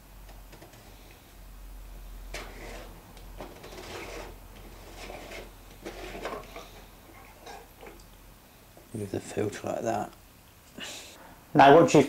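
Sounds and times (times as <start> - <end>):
plastic filter scraping and creaking: 2.3 - 8.0.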